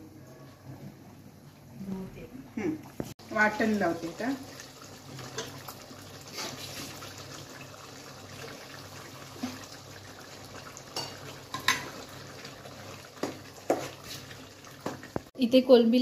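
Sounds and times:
curry simmering in a pot: 3.0s - 15.4s.

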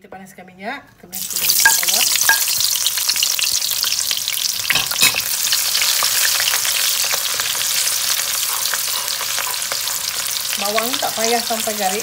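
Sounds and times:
onions sizzling in hot oil: 1.2s - 12.0s
wooden spatula stirring: 6.6s - 11.1s.

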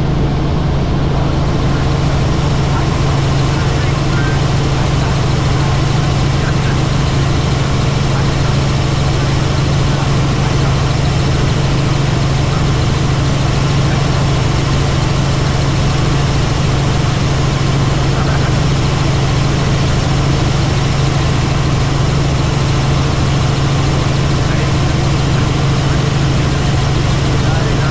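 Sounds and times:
helicopter drone: 0.0s - 27.9s.

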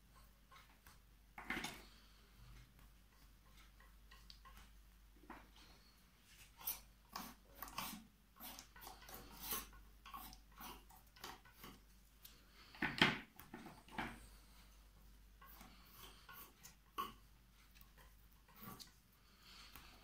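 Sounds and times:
paint scraping on paper: 5.6s - 11.8s, 15.4s - 20.0s.

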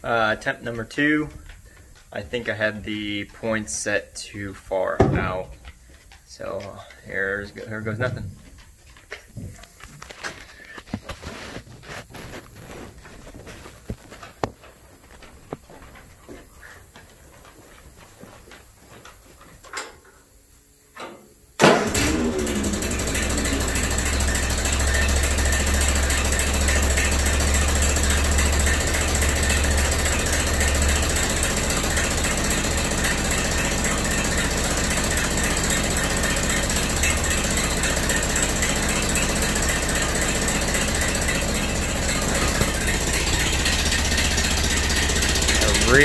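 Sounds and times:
tractor engine starting and running: 0.0s - 14.2s, 21.0s - 46.0s
faint knocks: 5.0s - 6.0s.

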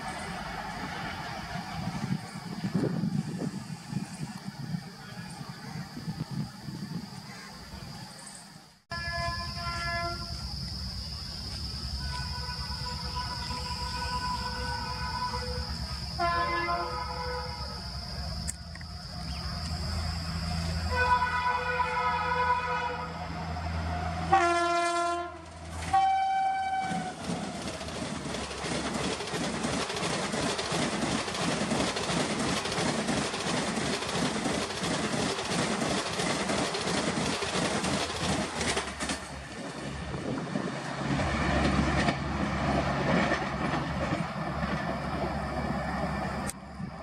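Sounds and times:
train horn blasts: 8.9s - 10.4s, 12.0s - 17.8s, 20.9s - 27.2s
train wheels clickety-clack: 26.6s - 45.0s.

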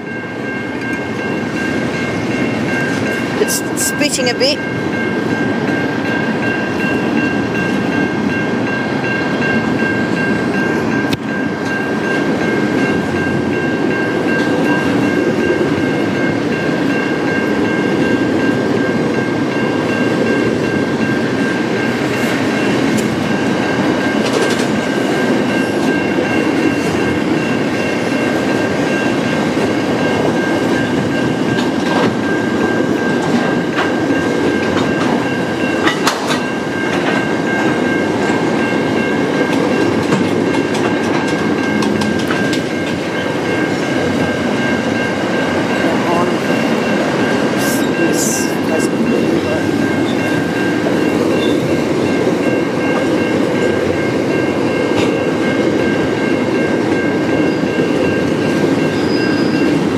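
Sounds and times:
freight train rumbling past: 0.0s - 59.9s
wheels clanking over rails: 5.6s - 48.0s
high-pitched ringing tone: 40.6s - 59.9s.

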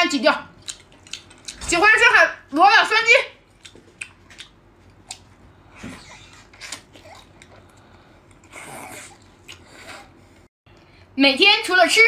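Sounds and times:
soft chewing: 3.5s - 10.9s.

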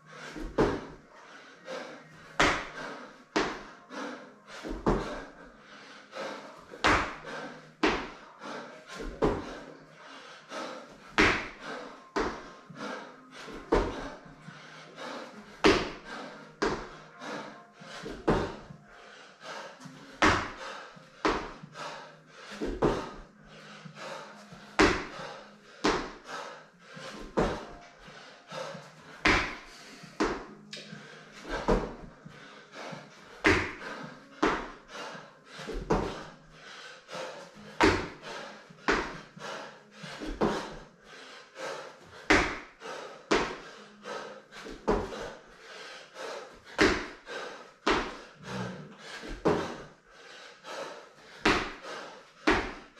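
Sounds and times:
thuds on rubber gym mats: 0.4s - 1.0s, 2.3s - 3.7s, 4.6s - 5.3s, 6.8s - 8.2s, 8.9s - 9.6s, 11.1s - 12.5s, 13.5s - 14.2s, 15.6s - 17.0s, 17.9s - 18.7s, 20.2s - 21.9s, 22.5s - 23.3s, 24.0s - 26.2s, 27.0s - 27.8s, 28.5s - 30.5s, 31.4s - 34.8s, 35.6s - 36.4s, 37.8s - 39.3s, 40.1s - 40.9s, 42.2s - 43.7s, 44.6s - 45.4s, 46.7s - 48.6s, 49.2s - 49.9s, 51.3s - 52.9s.

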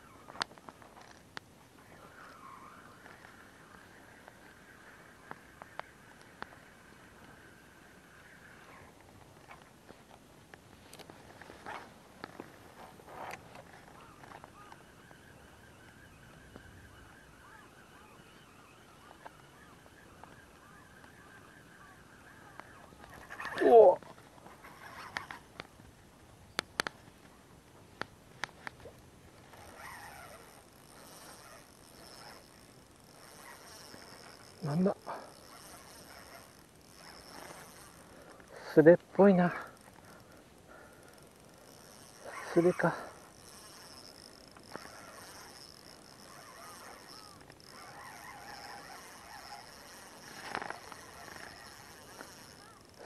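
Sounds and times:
faint bird calls: 1.8s - 9.6s, 13.1s - 25.5s, 29.4s - 53.0s
fishing reel clicks: 2.1s - 8.9s, 13.1s - 25.7s, 28.0s - 53.0s
faint waterfowl calls: 13.7s - 25.4s
high-pitched insect drone: 29.5s - 53.0s.

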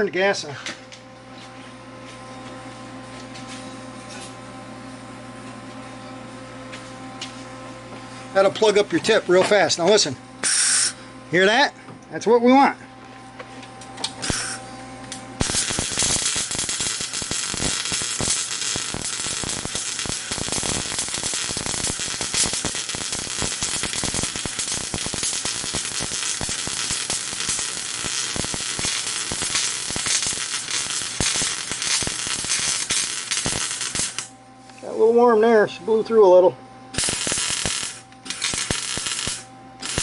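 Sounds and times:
welder arc crackling: 14.1s - 35.1s, 37.0s - 40.0s.

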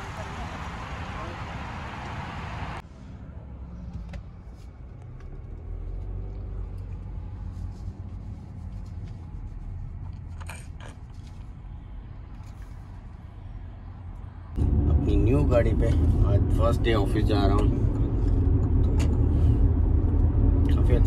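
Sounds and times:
outdoor noise hiss: 0.0s - 2.8s
car cabin road rumble: 0.0s - 21.0s.

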